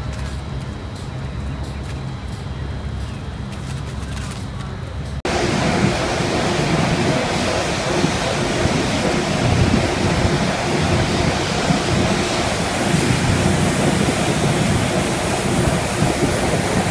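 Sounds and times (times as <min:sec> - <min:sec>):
water gushing and splashing: 0:05.3 - 0:16.9.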